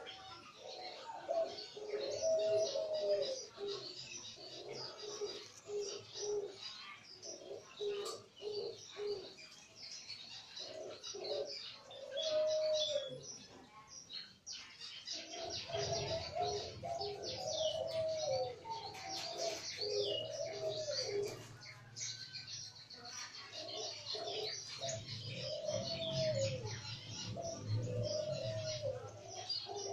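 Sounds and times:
doves cooing: 0:00.0 - 0:09.6, 0:10.2 - 0:13.4, 0:15.1 - 0:29.9
small birds chirping: 0:00.0 - 0:29.9.

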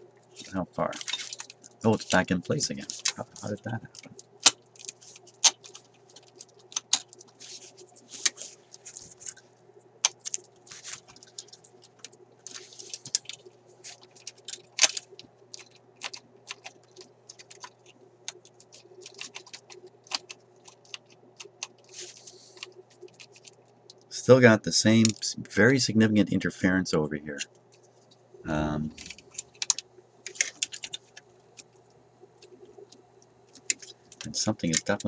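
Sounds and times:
faint steady hum: 0:00.0 - 0:35.0
metal parts clicking and scraping: 0:00.4 - 0:09.4, 0:29.0 - 0:31.7.

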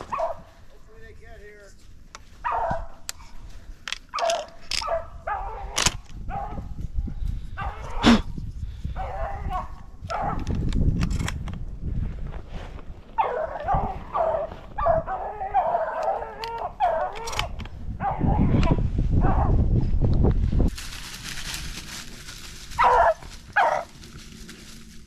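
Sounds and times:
beagles baying and howling: 0:02.4 - 0:03.4, 0:04.0 - 0:06.8, 0:08.9 - 0:10.5, 0:13.2 - 0:19.7, 0:22.6 - 0:24.7.

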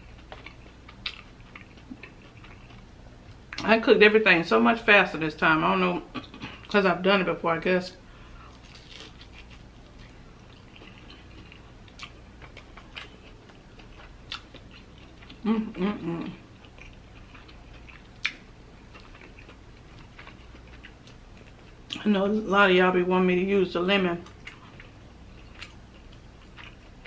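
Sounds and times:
crunchy chewing: 0:00.0 - 0:03.6, 0:08.4 - 0:21.9, 0:24.2 - 0:27.0.

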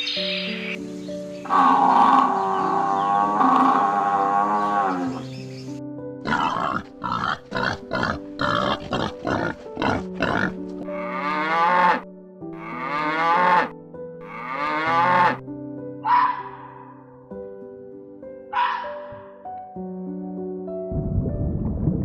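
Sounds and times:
background music: 0:00.0 - 0:22.0
bull lowing: 0:01.5 - 0:05.2, 0:06.2 - 0:12.0.

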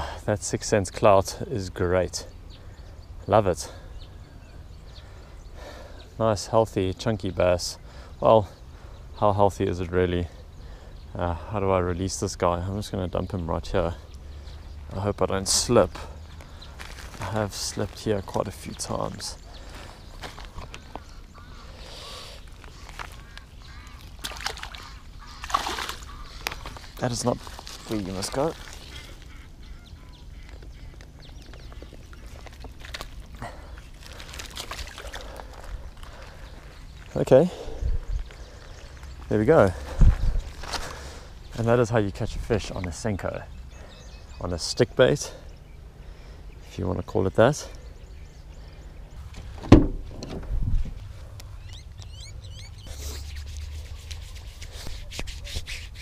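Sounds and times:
bird chirping: 0:01.7 - 0:56.0
long grass rustling: 0:16.2 - 0:37.2, 0:52.8 - 0:56.0
low steady rumble: 0:47.8 - 0:52.9
car door latch clicking: 0:49.6 - 0:50.5
car door thump: 0:49.6 - 0:50.5.

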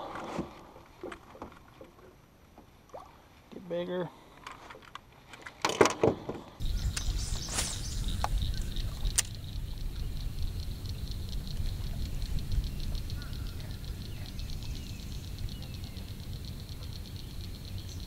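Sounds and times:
low outdoor rumble: 0:06.6 - 0:18.0.

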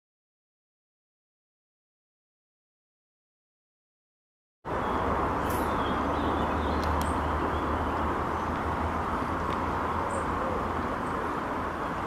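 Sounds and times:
constant low rumble: 0:04.7 - 0:12.0.

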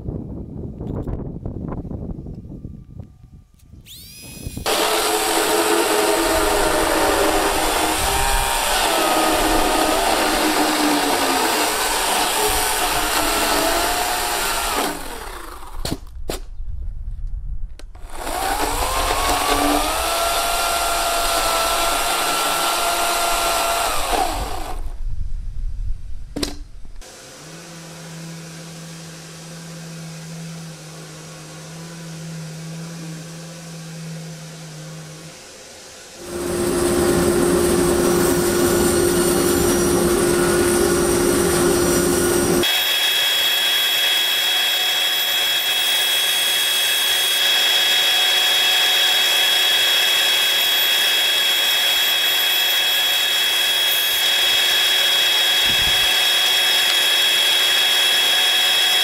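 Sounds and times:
machine humming: 0:03.9 - 0:15.8, 0:18.0 - 0:25.0, 0:27.0 - 0:42.8
chainsaw cutting wood: 0:03.9 - 0:16.4, 0:18.0 - 0:25.0, 0:26.4 - 0:30.9, 0:36.2 - 0:59.0.

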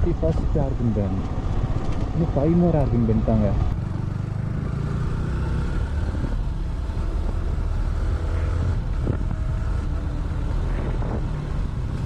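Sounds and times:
motorcycle engine at speed: 0:01.1 - 0:12.0
wind buffeting microphone: 0:05.8 - 0:07.6, 0:08.6 - 0:12.0.

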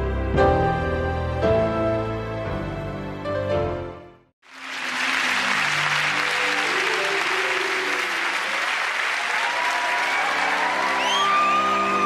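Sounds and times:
music playing: 0:00.0 - 0:08.8, 0:10.0 - 0:12.0
audience applauding: 0:04.4 - 0:12.0.

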